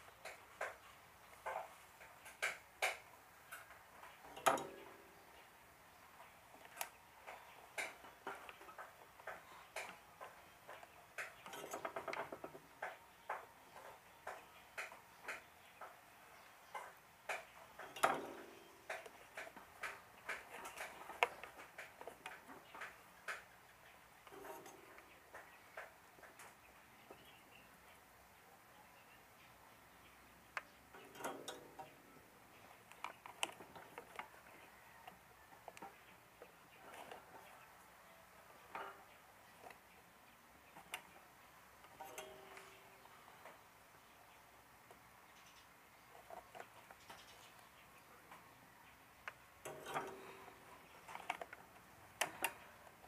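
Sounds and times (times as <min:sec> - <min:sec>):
light clicks and taps: 0:30.1 - 0:37.6.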